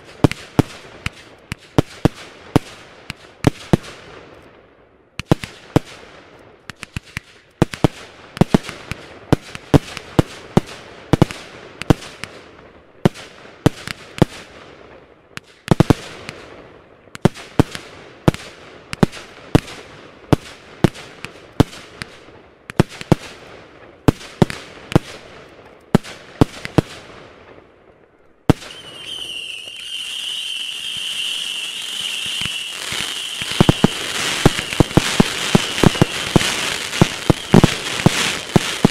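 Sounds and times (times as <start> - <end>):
firework bangs: 28.4 - 38.9
high whistle-like tone: 28.7 - 33.8
firework fountain hissing: 28.7 - 38.9.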